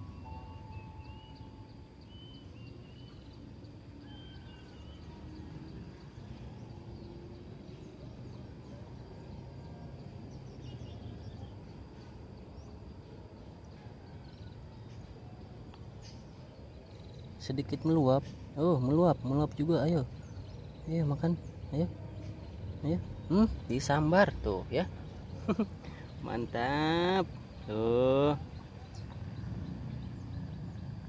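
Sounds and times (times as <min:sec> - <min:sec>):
low background rumble: 0:00.0 - 0:31.0.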